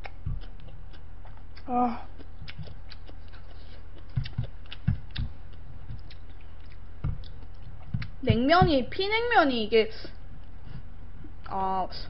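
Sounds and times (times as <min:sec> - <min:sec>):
chewing: 0:00.0 - 0:08.2
soft thumps: 0:04.1 - 0:06.2, 0:07.0 - 0:09.1.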